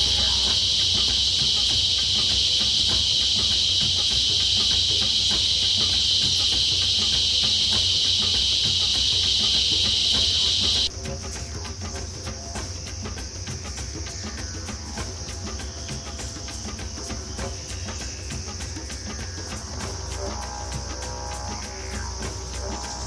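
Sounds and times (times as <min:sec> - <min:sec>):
faint high buzz: 0:00.0 - 0:11.0
insects droning chorus: 0:00.0 - 0:23.0.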